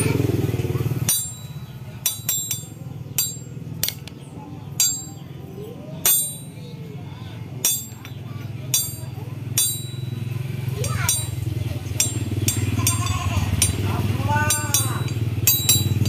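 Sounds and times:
metal tools clinking: 1.0 - 4.2, 4.8 - 5.3, 6.0 - 6.7, 7.6 - 16.0.

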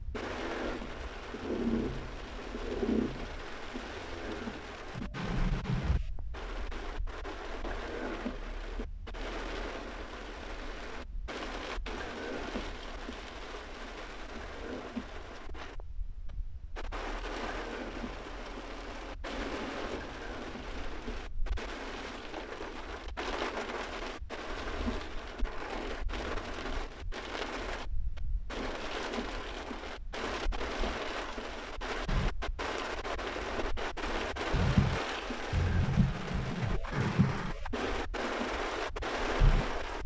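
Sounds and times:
heavy rain on car roof: 0.0 - 15.8, 16.7 - 27.9, 28.5 - 40.0
low thumps: 34.5 - 38.5, 39.4 - 39.9.

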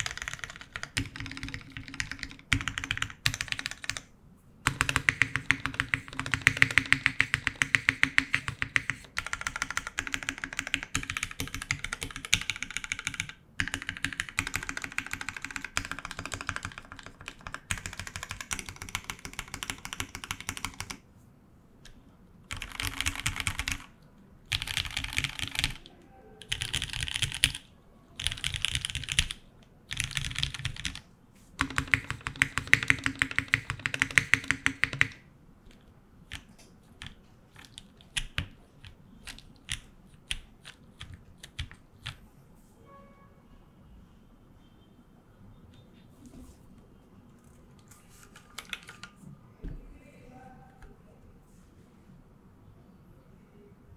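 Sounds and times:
mechanical keyboard typing: 0.0 - 21.0, 22.5 - 31.0, 31.6 - 42.2, 48.2 - 49.2.

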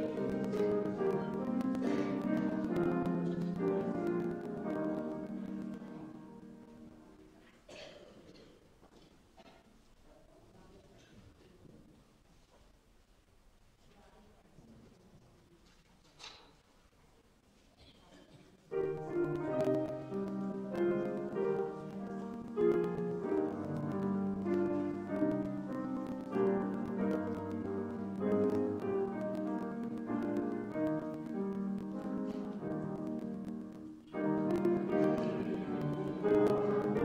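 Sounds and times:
slow piano music: 0.0 - 7.3, 18.7 - 37.0.

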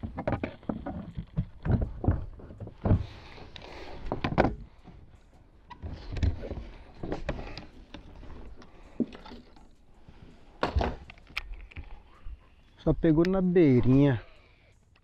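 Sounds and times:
knocks and rattles in kayak: 0.0 - 3.4.

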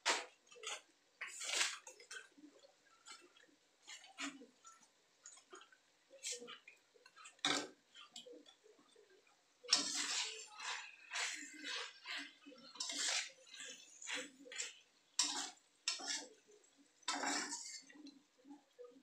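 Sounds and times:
metal spatula scraping a wok: 0.1 - 2.3, 9.7 - 16.4, 17.0 - 18.0.

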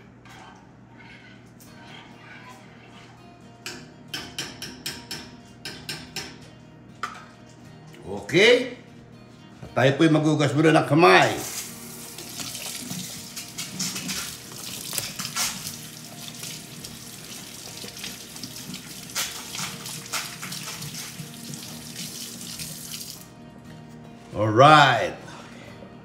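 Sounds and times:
faucet running into sink: 11.9 - 23.2
water splashing on hands: 17.8 - 23.2.

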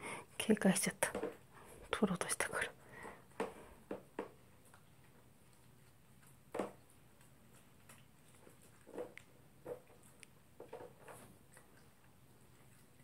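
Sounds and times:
dog crunching food: 4.2 - 13.0.

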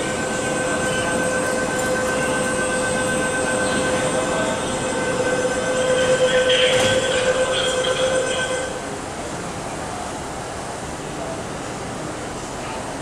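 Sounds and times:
high squeal: 0.0 - 8.9
electric train two-tone whine: 0.0 - 13.0
train rumble: 0.0 - 13.0.

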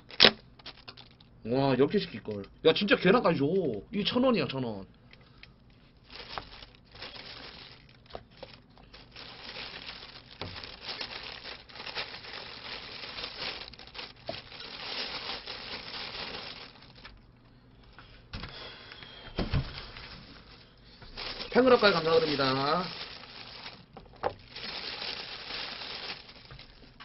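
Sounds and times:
plastic bag crinkling: 0.0 - 2.5, 5.7 - 17.3, 19.6 - 27.0.

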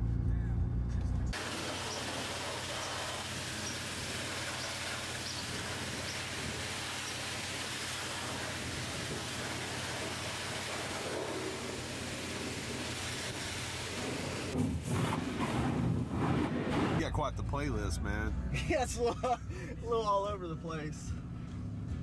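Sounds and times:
pressure washer spraying water: 1.4 - 15.5.

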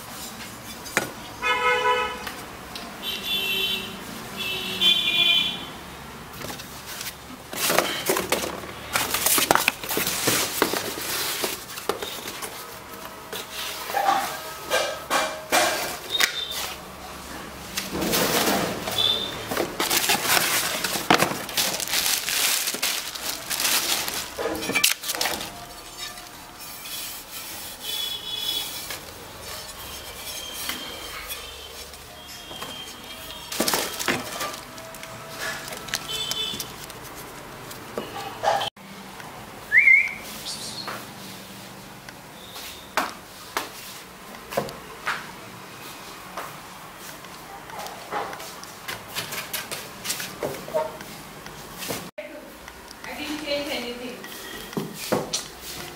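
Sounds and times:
packaging rustling and crinkling: 6.5 - 13.7, 17.8 - 26.6, 31.7 - 38.1.

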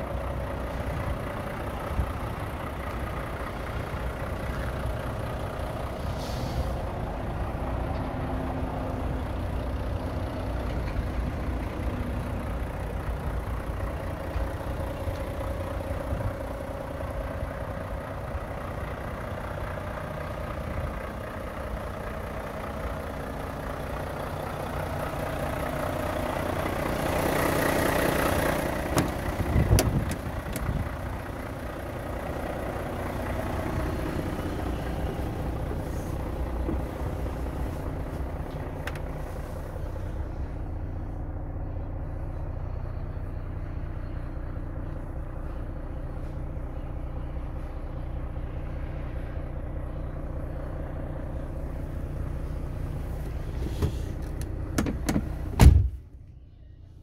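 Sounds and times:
diesel truck engine idling: 0.0 - 57.0
cab door clicks and knocks: 29.0 - 30.6, 54.7 - 56.0.

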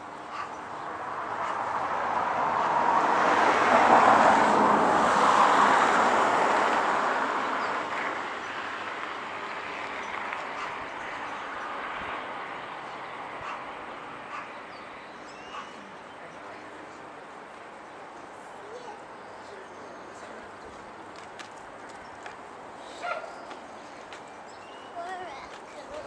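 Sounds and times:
vehicle passing by: 0.4 - 26.0.

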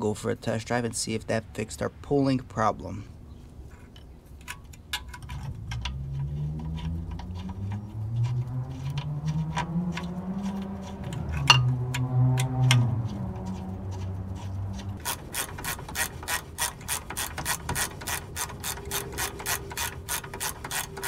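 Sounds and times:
metal parts clicking and tapping: 3.8 - 21.0
low engine-like hum: 5.2 - 21.0.

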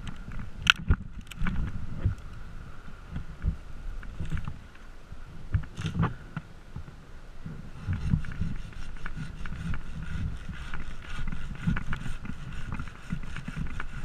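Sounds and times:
knocks and scrapes on tree limbs: 0.0 - 2.3, 3.2 - 6.2, 7.5 - 14.0
sharp clicks of climbing gear: 0.0 - 2.4, 5.5 - 6.5, 7.8 - 14.0.

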